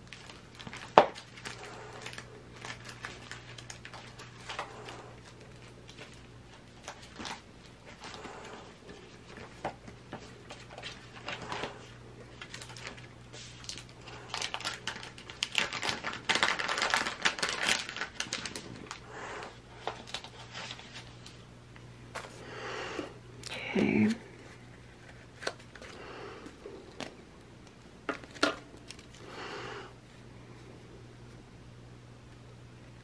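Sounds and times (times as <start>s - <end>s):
steady low hum: 0.0s - 33.0s
paper rustling and clicks: 12.4s - 19.0s.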